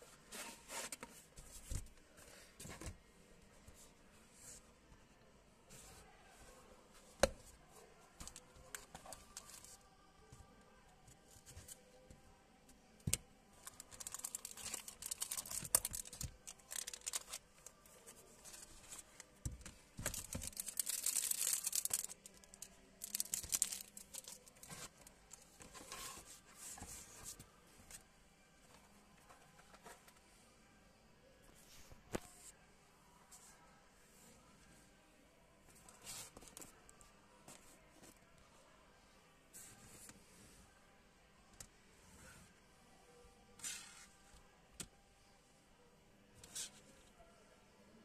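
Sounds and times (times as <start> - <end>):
plastic wrapping crinkling: 13.6 - 17.4, 20.0 - 24.7.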